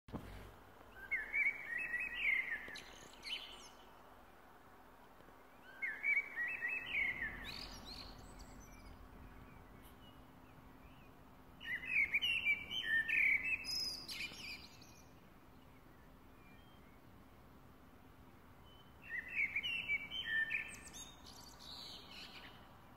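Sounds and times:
faint steady hum: 0:00.1 - 0:22.9
songbird warbling and twittering: 0:05.6 - 0:15.2.

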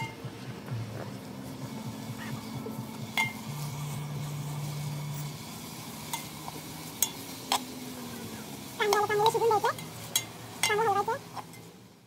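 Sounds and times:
food sizzling in a pot: 0:00.0 - 0:00.3, 0:01.2 - 0:12.0
spoon clinking against pot: 0:03.2 - 0:03.4, 0:08.9 - 0:11.7.

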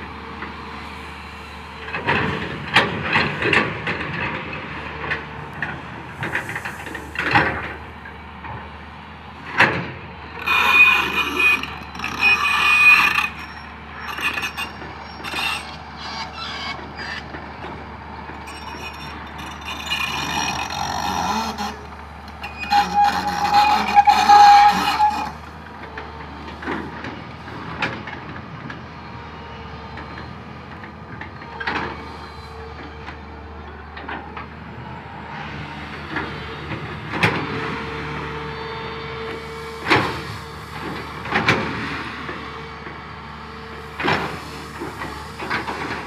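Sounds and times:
diesel engine running: 0:00.0 - 0:46.0
hydraulic whine: 0:10.3 - 0:17.3, 0:18.4 - 0:25.6
high squeal: 0:10.4 - 0:17.2, 0:22.4 - 0:25.4.

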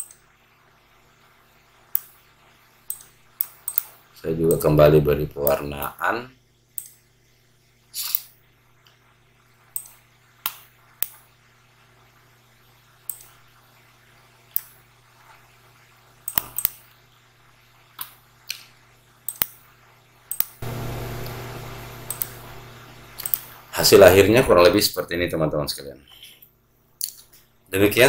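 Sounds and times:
steady hiss: 0:00.0 - 0:25.4
computer mouse clicking: 0:01.9 - 0:02.2, 0:02.9 - 0:04.0, 0:09.7 - 0:11.2, 0:16.2 - 0:16.8, 0:19.3 - 0:19.6, 0:20.3 - 0:21.4, 0:22.0 - 0:22.4, 0:23.2 - 0:23.5
low steady hum: 0:20.6 - 0:24.8.

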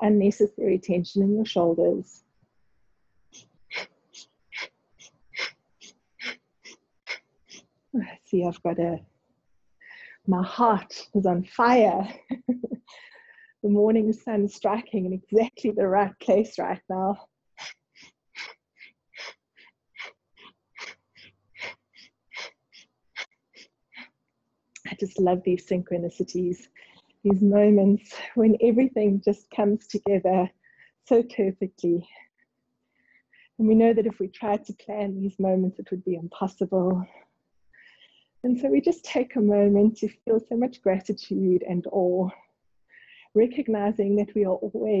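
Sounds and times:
rapid rhythmic breathing: 0:03.4 - 0:08.3, 0:09.8 - 0:10.3, 0:12.8 - 0:13.7, 0:17.6 - 0:24.2, 0:26.6 - 0:27.2, 0:37.0 - 0:38.4.

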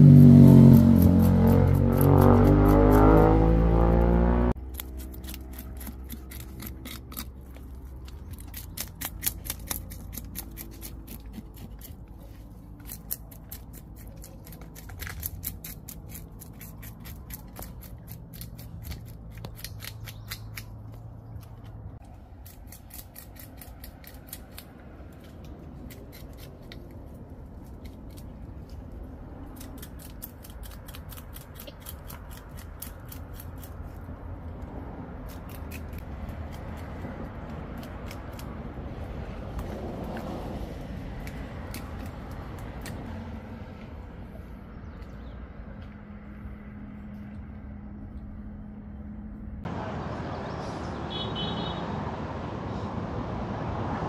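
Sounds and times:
knife scraping fish scales: 0:04.6 - 0:20.8.

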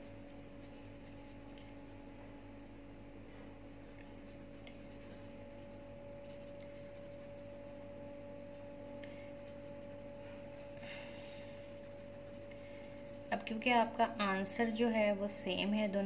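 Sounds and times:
pencil scratching on paper: 0:00.0 - 0:02.9, 0:04.2 - 0:07.8, 0:08.5 - 0:10.3, 0:11.3 - 0:13.6
low electrical hum: 0:00.0 - 0:16.0.

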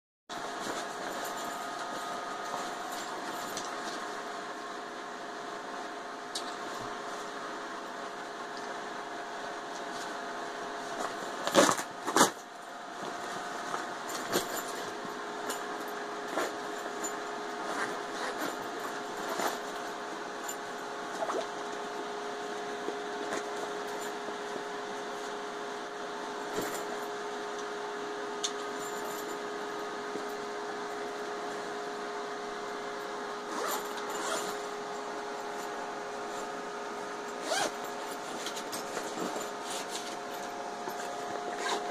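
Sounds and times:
steady hum: 0:00.3 - 0:41.9
nylon straps rustling: 0:33.5 - 0:34.6, 0:37.4 - 0:41.9.

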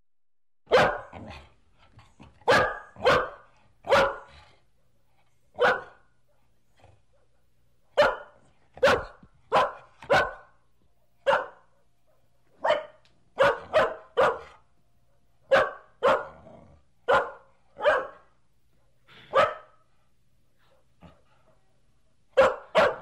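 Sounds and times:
dog barking: 0:00.7 - 0:01.2, 0:02.4 - 0:04.4, 0:05.6 - 0:06.1, 0:07.9 - 0:10.6, 0:11.2 - 0:14.6, 0:15.5 - 0:16.4, 0:17.1 - 0:18.3, 0:19.2 - 0:19.8, 0:22.3 - 0:23.0.

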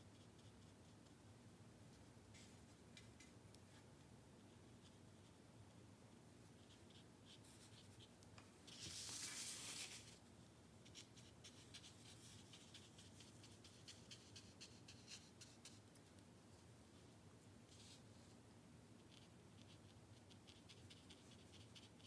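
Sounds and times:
brush swishing on paper: 0:08.7 - 0:10.2
brush dabbing scratchily: 0:10.9 - 0:16.0, 0:19.0 - 0:22.0.

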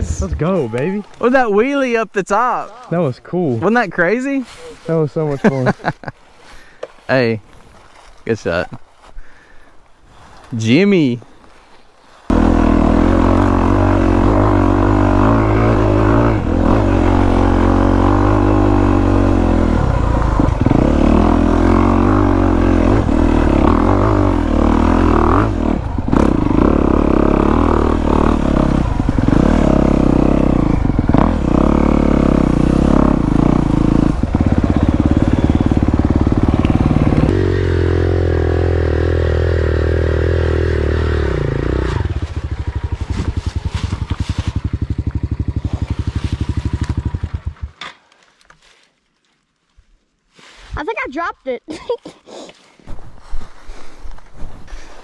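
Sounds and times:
dirt bike engine: 0:12.3 - 0:48.1.

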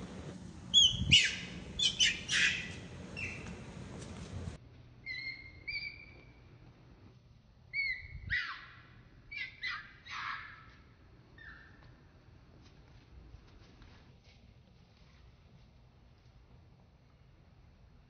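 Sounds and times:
baby monkey screaming: 0:00.7 - 0:03.4, 0:07.7 - 0:10.6.

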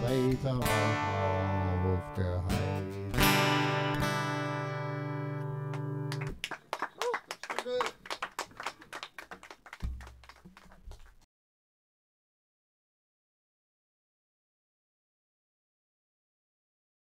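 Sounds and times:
people clapping: 0:05.4 - 0:11.3.

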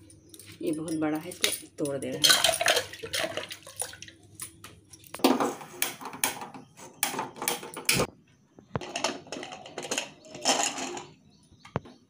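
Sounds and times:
maize cobs knocking on steel pots: 0:00.4 - 0:08.1.

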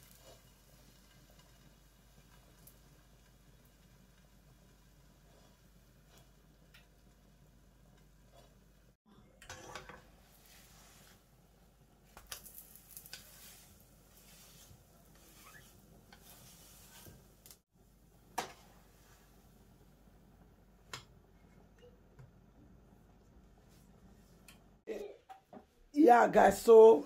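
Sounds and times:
spatula scraping frying pan: 0:05.1 - 0:06.8, 0:09.4 - 0:11.2, 0:12.2 - 0:17.6.

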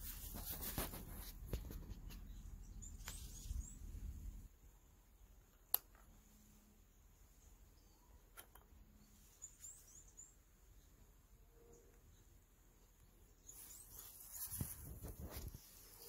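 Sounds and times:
rustling noise: 0:00.0 - 0:04.3, 0:13.5 - 0:16.0.

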